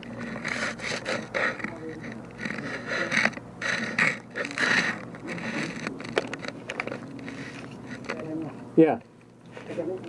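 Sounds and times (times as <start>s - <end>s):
gear scraping against wooden barricade: 0.0s - 6.2s.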